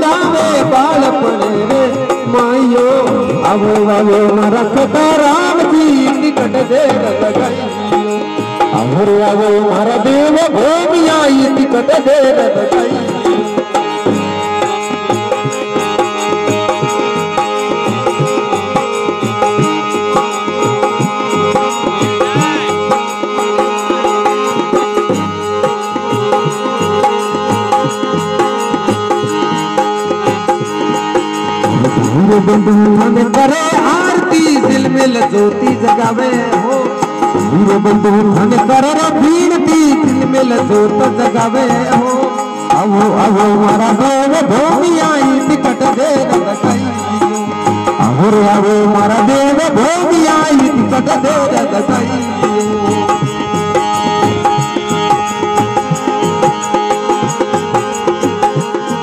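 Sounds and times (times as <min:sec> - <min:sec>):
man singing: 0:00.0 - 0:14.0, 0:17.3 - 0:25.1, 0:31.0 - 0:55.9
steady held melodic notes: 0:00.0 - 0:59.0
tabla drumming: 0:00.0 - 0:59.0.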